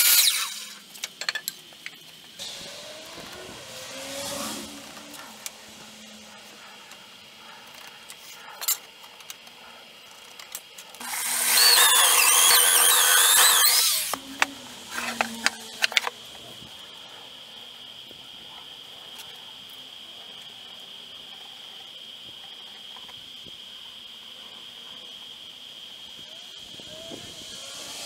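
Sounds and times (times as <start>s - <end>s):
electric drill boring into wood: 0.0s - 0.9s, 11.0s - 16.4s, 26.5s - 28.0s.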